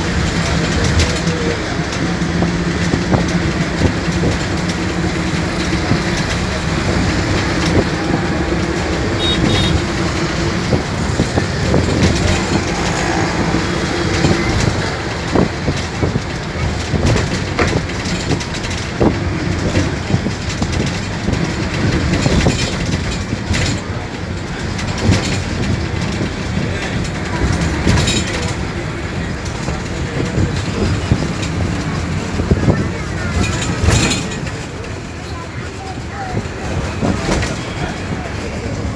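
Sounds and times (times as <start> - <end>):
rattles and knocks: 0.0 - 38.9
vehicle road rumble: 0.0 - 38.9.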